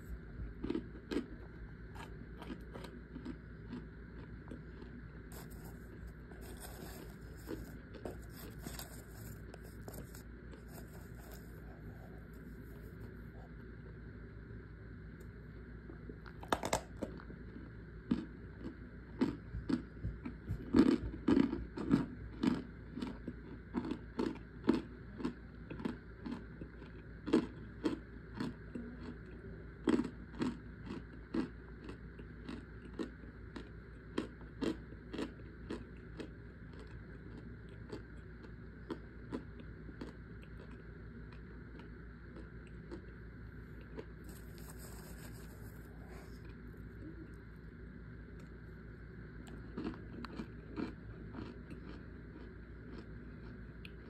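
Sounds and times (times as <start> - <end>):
dry crunches of chewing: 0.0 - 13.8, 15.9 - 54.0.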